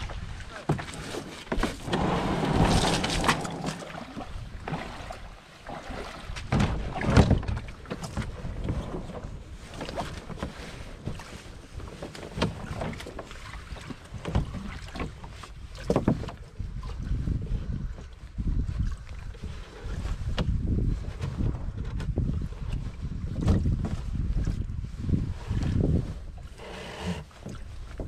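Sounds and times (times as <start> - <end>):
wind rumbling on microphone: 0.0 - 0.5, 1.6 - 13.0, 13.6 - 28.0
paddle knocking against hull: 0.1 - 16.6.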